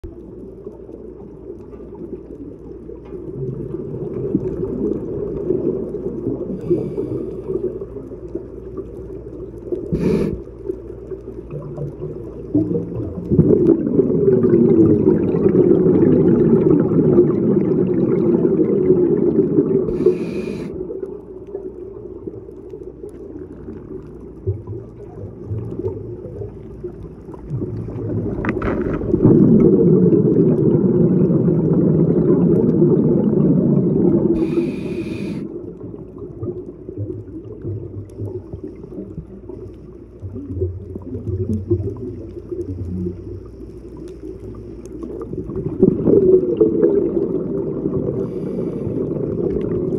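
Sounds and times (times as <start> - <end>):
underwater exhaled bubbles rumbling: 0.0 - 49.9
regulator hiss on inhale: 6.5 - 7.8, 9.9 - 10.8, 19.9 - 21.0, 34.3 - 35.6, 48.1 - 49.3.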